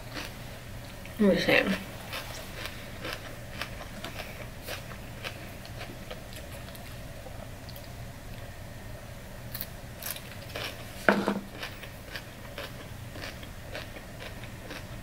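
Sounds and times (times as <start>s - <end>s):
chewing crunches and wet clicks: 2.1s - 8.5s, 11.6s - 15.0s.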